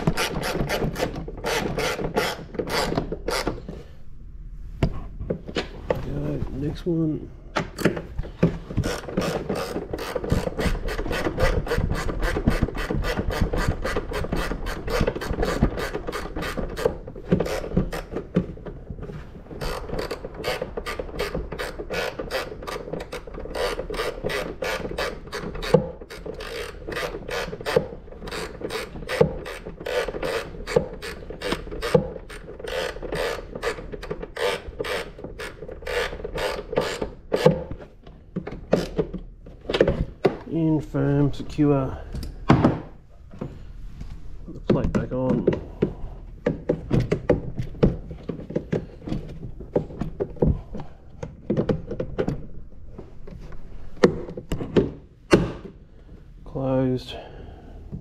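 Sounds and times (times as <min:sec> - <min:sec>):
socket ratchet clicking: 0:19.6 - 0:37.6.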